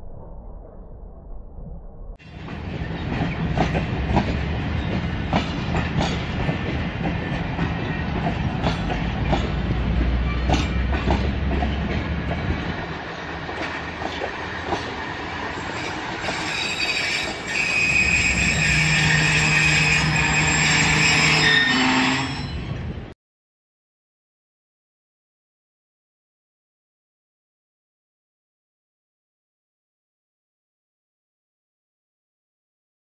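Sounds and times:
train wheels clanking over rail joints: 2.4s - 12.8s
high wheel squeal: 15.7s - 22.9s.

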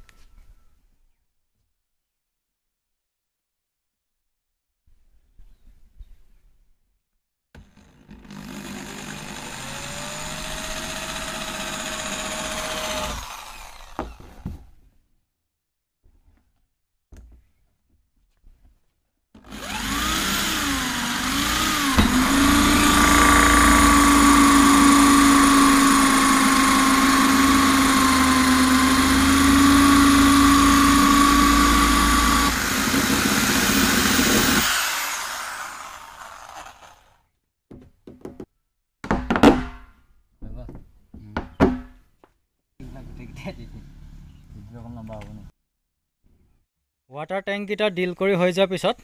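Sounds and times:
electric drill cutting plastic: 7.6s - 14.5s, 19.4s - 37.2s.

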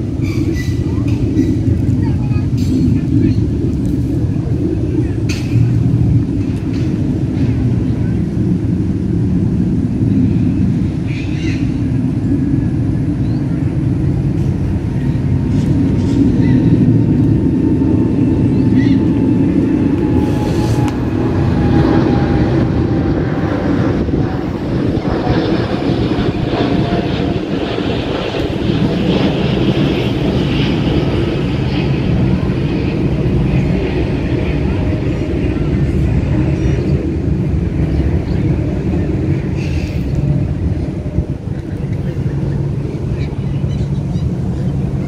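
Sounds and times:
low engine rumble: 0.0s - 45.0s.

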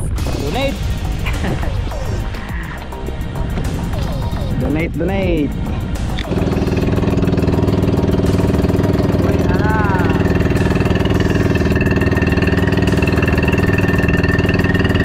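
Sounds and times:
boat engine running: 0.0s - 15.0s
warbling tone: 5.6s - 15.0s.

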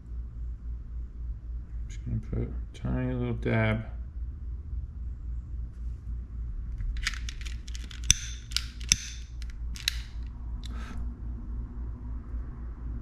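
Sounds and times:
steady low hum: 0.0s - 13.0s
sharp clicks: 6.9s - 10.8s
small tools clicking and crackling: 6.9s - 10.8s.

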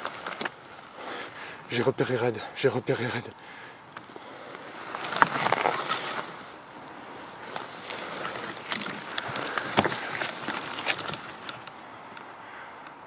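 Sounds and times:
rustling and scraping over stony ground: 0.0s - 2.3s, 3.8s - 12.4s
rifle handling clicks and knocks: 7.5s - 12.9s.

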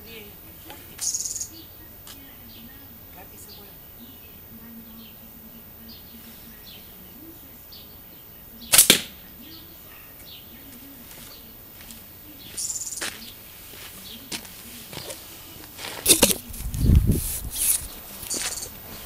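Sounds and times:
bamboo shooter double crack: 8.7s - 9.1s
scratchy rustle: 14.6s - 19.0s.

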